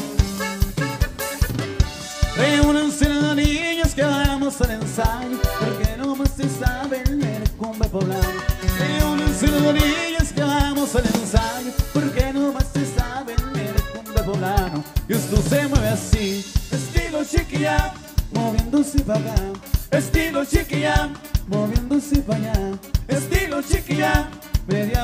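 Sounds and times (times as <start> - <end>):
button accordion: 0.0 - 3.6, 4.3 - 6.4, 8.0 - 18.2
bajo sexto guitar: 0.0 - 25.0
drum kit beat: 0.0 - 25.0
electric bass: 0.0 - 25.0.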